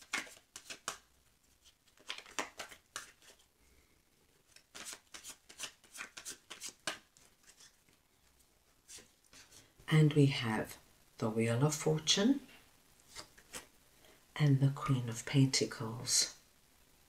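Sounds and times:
cards being shuffled: 0.0s - 3.5s, 4.4s - 8.0s, 13.1s - 13.7s.

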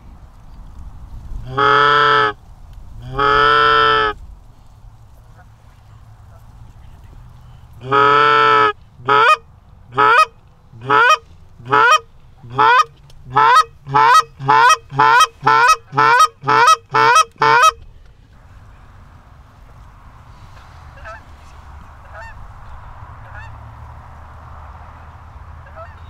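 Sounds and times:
goose call honks: 1.4s - 2.4s, 3.0s - 4.2s, 7.8s - 17.9s, 20.9s - 21.3s, 22.0s - 22.4s, 23.2s - 23.6s, 25.6s - 26.0s.

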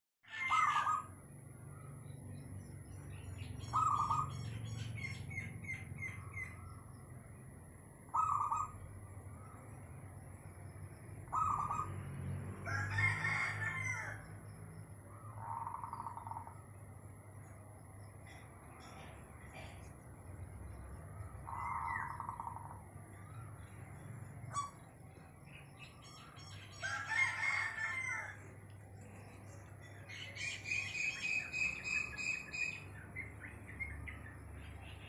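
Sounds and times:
birdsong chirps: 0.3s - 12.3s, 13.2s - 35.0s
rooster crowing: 12.6s - 14.4s, 26.4s - 28.7s.

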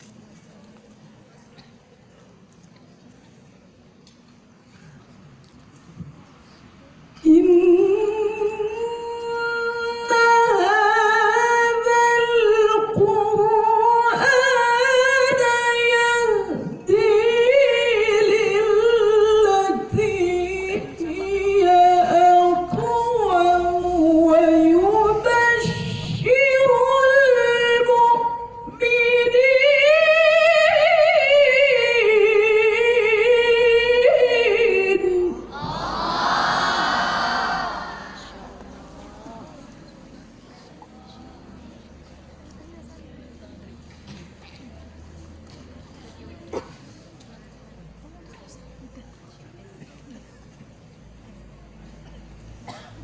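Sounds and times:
woman reciting melodically: 7.1s - 43.0s.

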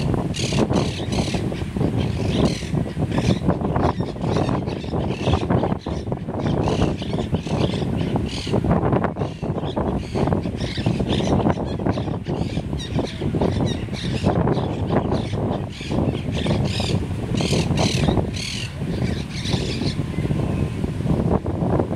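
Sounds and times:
parakeets calling: 0.0s - 20.3s
wind rumble on microphone: 0.0s - 21.9s.

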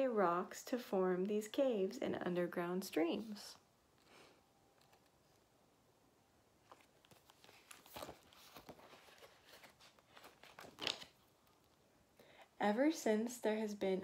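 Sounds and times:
paper page rustling: 4.0s - 5.5s, 6.6s - 11.8s
page swishes: 6.6s - 11.3s.

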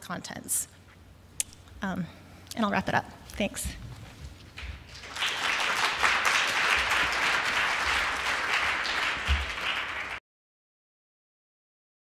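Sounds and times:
audience applauding: 4.7s - 10.2s.

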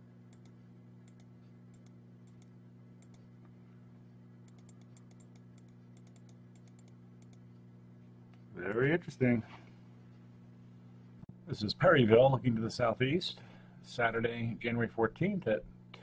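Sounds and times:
low electrical hum: 0.0s - 16.0s
faint small clicks: 0.3s - 3.5s, 4.4s - 7.6s.

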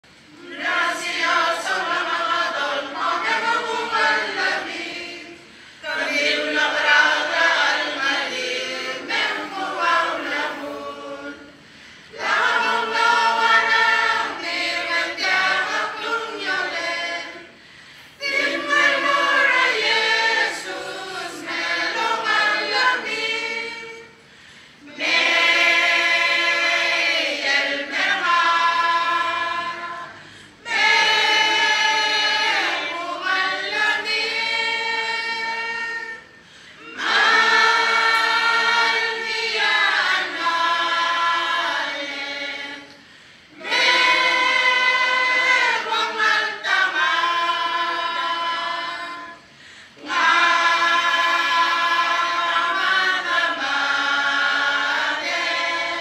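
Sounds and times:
mixed choir singing a cappella: 0.0s - 56.0s.

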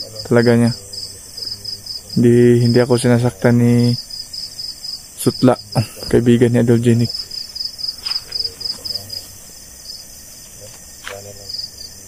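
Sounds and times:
man's voice: 0.0s - 4.0s, 5.2s - 7.2s
crickets chirping: 0.0s - 12.0s.

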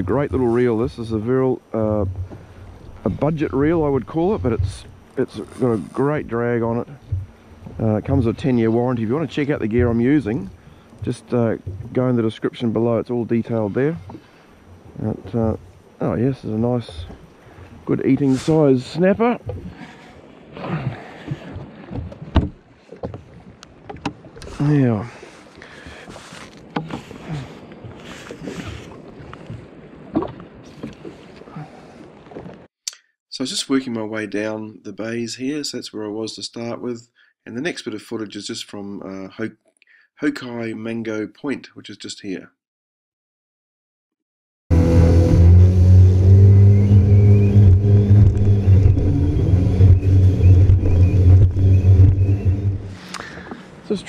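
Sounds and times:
water splashing: 0.0s - 32.7s, 44.7s - 54.0s
jet ski engine drone: 44.7s - 53.5s.

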